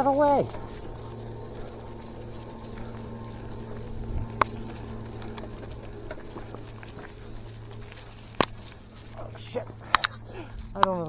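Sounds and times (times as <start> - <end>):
bike tyres rumbling on dirt: 0.0 - 10.8.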